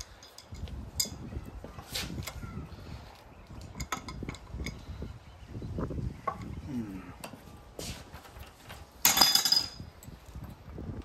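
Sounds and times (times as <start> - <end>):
wrench clinking on metal: 0.0 - 1.3, 3.6 - 4.9, 9.0 - 10.2.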